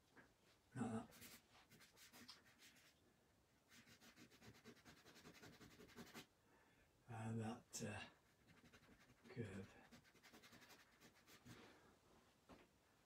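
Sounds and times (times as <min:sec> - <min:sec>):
drawing stick scratching paper: 0:01.0 - 0:02.9, 0:03.7 - 0:06.3, 0:08.3 - 0:11.6.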